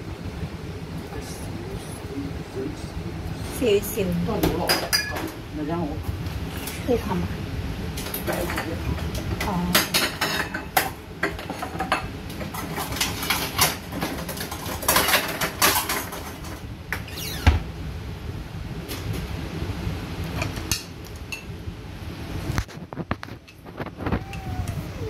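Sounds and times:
dishes and utensils clinking: 4.4s - 5.4s, 8.0s - 16.6s.

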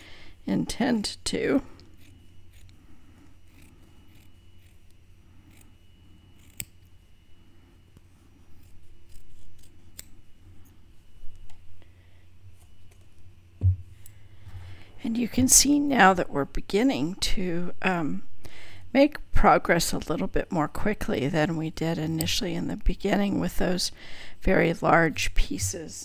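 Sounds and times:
faint steady hum: 0.0s - 26.0s
scissors snipping through felt: 1.8s - 2.8s, 3.5s - 5.7s, 6.4s - 6.9s, 8.5s - 10.2s
scissor blades clicking: 2.0s - 2.8s, 6.4s - 6.9s, 8.6s - 10.2s.

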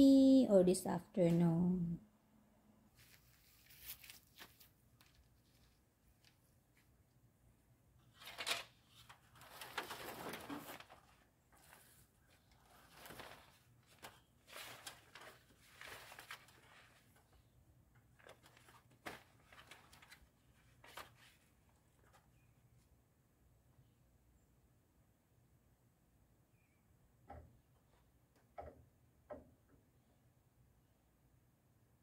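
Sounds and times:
plastic sheeting rustling: 2.9s - 6.8s, 8.1s - 17.4s, 18.1s - 22.2s.

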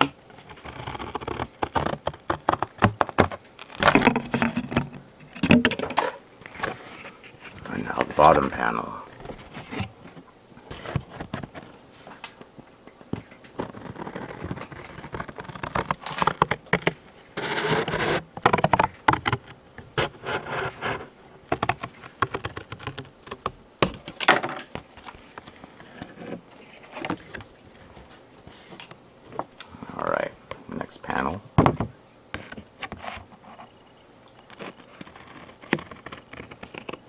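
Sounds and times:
cardboard box being pulled apart: 13.6s - 18.3s.

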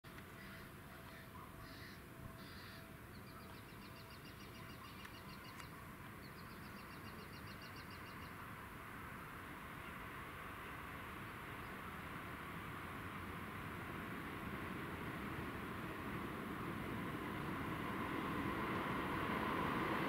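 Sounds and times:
faint outdoor background noise: 0.0s - 20.0s
distant train: 0.1s - 20.0s
bird trilling: 0.4s - 5.6s.

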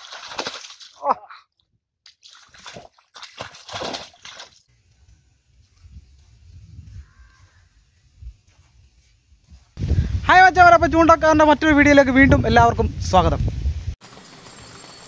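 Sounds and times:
water splashing in a stream: 0.0s - 1.2s, 2.1s - 4.7s.

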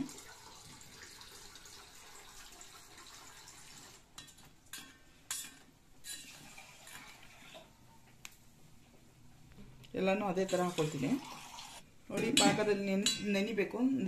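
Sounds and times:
faint liquid sounds: 0.0s - 9.0s, 9.8s - 12.1s
steel spoon scraping steel bowl: 4.2s - 7.6s, 10.4s - 11.8s.

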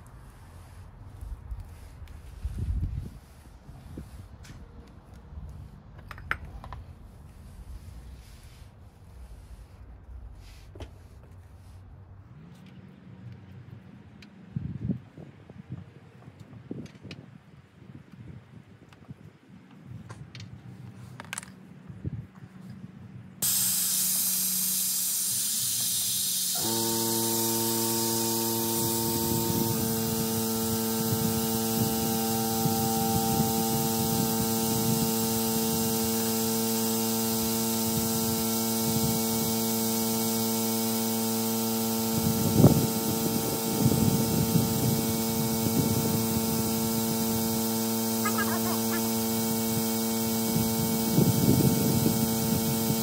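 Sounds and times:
air compressor humming: 23.4s - 53.0s
compressed air hissing: 23.4s - 53.0s.

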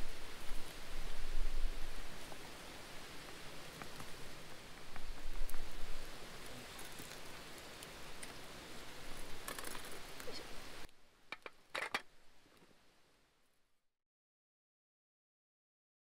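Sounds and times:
wood fire crackling and popping: 0.1s - 12.7s.

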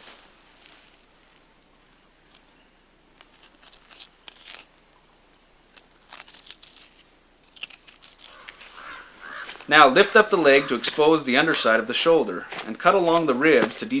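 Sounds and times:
knife cutting meat crackling: 5.7s - 9.0s.

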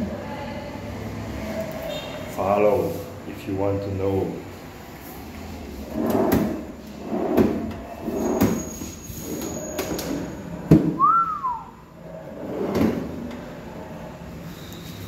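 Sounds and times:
drawer sliding open and shut: 5.7s - 11.0s, 12.1s - 14.0s
short whistle-like tone: 11.0s - 11.8s.

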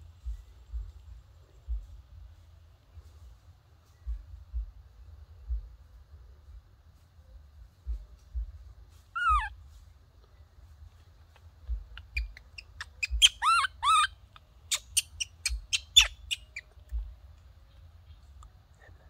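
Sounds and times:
shrill squeaks: 9.2s - 9.5s, 12.0s - 16.7s
baby monkey cooing: 9.2s - 9.6s, 11.3s - 17.1s.

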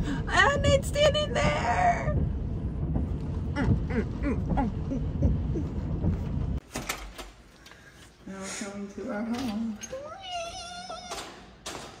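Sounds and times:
low rumble in truck cab: 0.0s - 6.6s.

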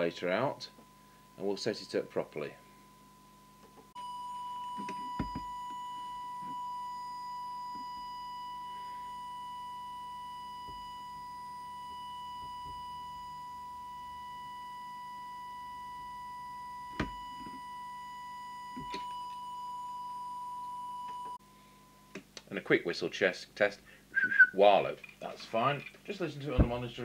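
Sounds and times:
steady test tone: 0.0s - 22.2s.

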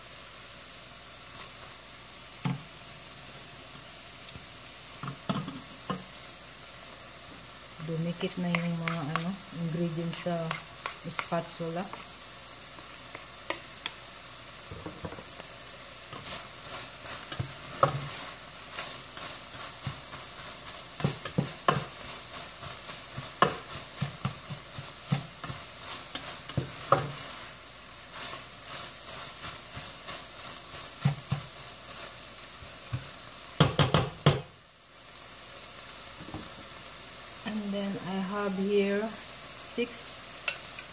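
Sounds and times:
food sizzling in a pan: 0.0s - 40.9s
spatula scraping and knocking pan: 8.2s - 12.1s, 12.8s - 14.0s, 14.6s - 15.4s, 16.1s - 27.5s, 28.1s - 32.2s, 32.8s - 34.5s.

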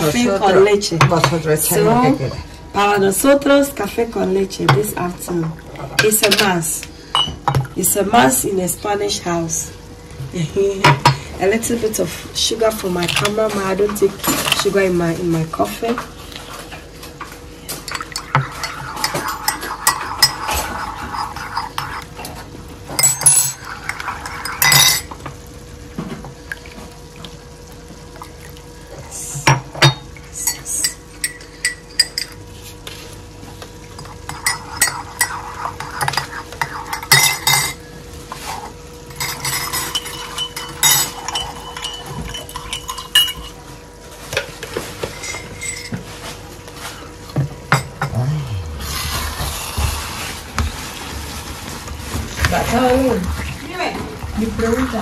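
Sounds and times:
stirring coffee: 17.7s - 25.4s, 30.4s - 43.6s, 48.9s - 55.0s
teaspoon clinking against mugs: 17.9s - 20.6s, 23.0s - 25.1s, 29.5s - 32.4s, 34.3s - 37.8s, 39.2s - 43.6s.

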